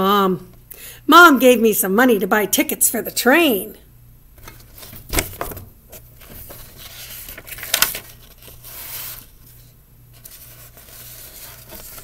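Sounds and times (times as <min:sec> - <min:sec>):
book page turning: 0:04.4 - 0:12.0.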